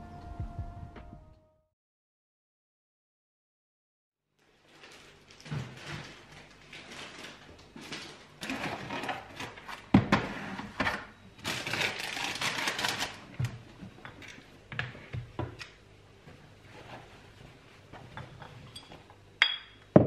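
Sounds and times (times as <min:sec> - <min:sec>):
plastic bags crinkling: 0:04.4 - 0:09.9, 0:11.4 - 0:13.4.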